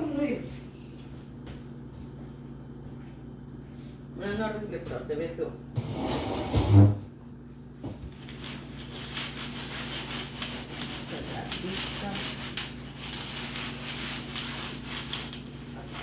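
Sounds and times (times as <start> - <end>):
sponge scrubbing a tabletop: 8.2 - 16.0.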